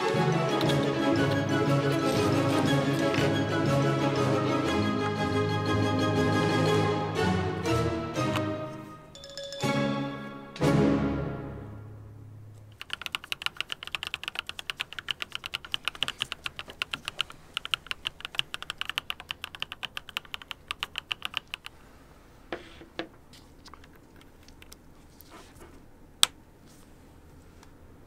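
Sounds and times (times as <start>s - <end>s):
fast typing on mechanical keyboard: 12.7s - 21.8s.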